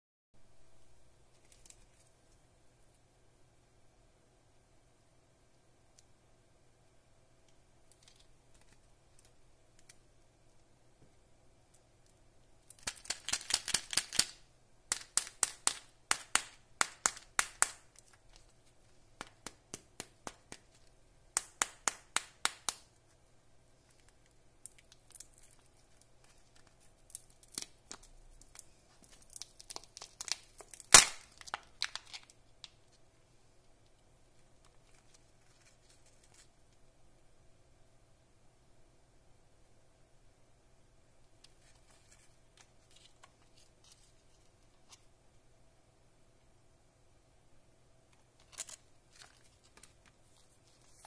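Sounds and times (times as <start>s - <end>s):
plastic egg clicking and crackling: 7.4s - 10.1s, 11.7s - 23.1s, 23.9s - 33.0s
plastic egg cracking open: 12.0s - 18.6s, 23.9s - 32.8s.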